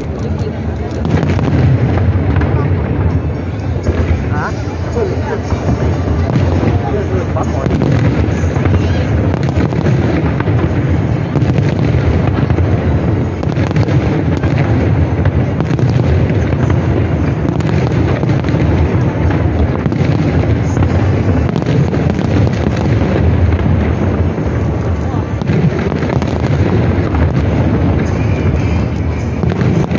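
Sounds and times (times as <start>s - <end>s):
fireworks booms: 0.0s - 29.9s
fireworks cracks and pops: 0.0s - 29.9s.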